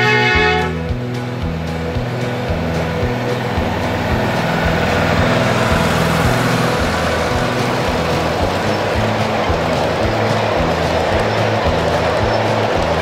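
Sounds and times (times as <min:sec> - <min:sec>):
miniature train rumbling on track: 0:00.0 - 0:13.0
music with stepping bass line: 0:00.0 - 0:13.0.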